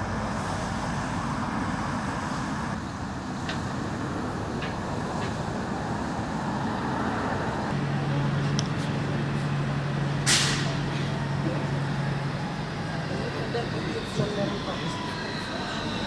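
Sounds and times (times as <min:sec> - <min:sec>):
electric train humming: 0:00.0 - 0:16.0
traffic rumble: 0:00.0 - 0:16.0
sharp hiss: 0:10.3 - 0:10.8.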